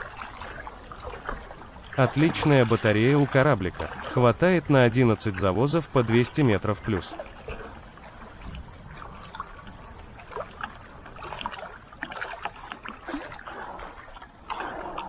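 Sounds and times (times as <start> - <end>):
lake water splashing and lapping: 0.0 - 15.0.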